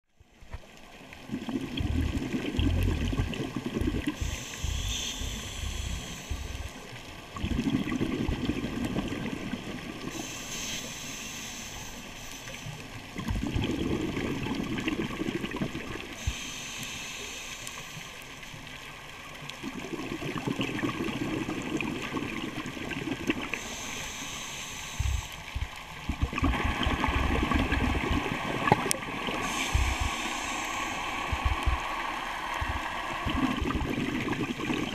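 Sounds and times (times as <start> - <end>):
exhaled bubbles burbling: 1.1 - 6.6, 7.3 - 10.1, 13.1 - 16.1, 19.4 - 23.6, 25.1 - 34.9
regulator inhale hiss: 4.0 - 7.0, 10.0 - 12.9, 16.1 - 18.6, 23.5 - 25.6, 29.2 - 33.6.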